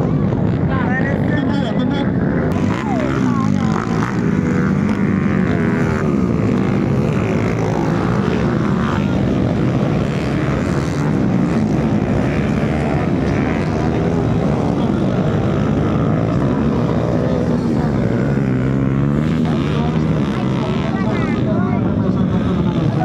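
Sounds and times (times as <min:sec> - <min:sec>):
dirt bike engines revving: 0:00.0 - 0:23.0.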